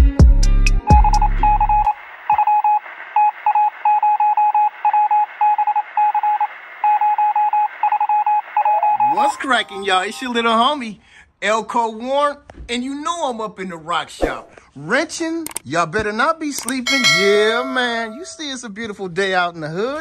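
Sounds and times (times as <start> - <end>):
bass-heavy music: 0.0 - 1.9
morse code beeps: 1.0 - 9.6, 16.8 - 18.4.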